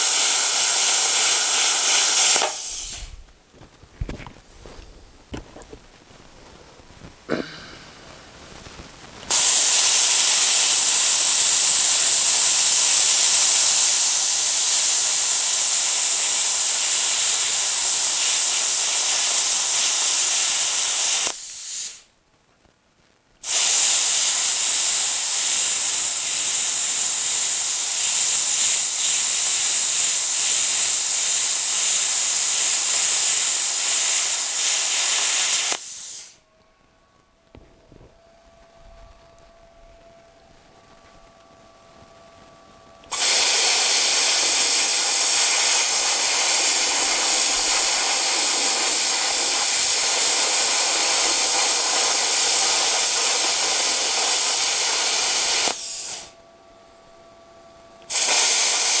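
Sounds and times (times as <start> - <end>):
plasma cutter hissing: 0.0 - 3.2, 9.3 - 22.1, 23.4 - 36.4, 43.0 - 56.4, 58.1 - 59.0.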